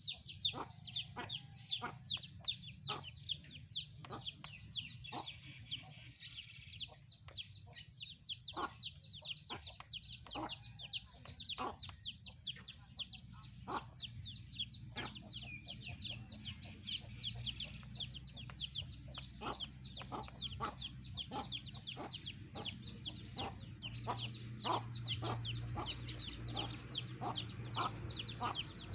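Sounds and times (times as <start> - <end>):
chicks peeping: 0.0 - 28.9.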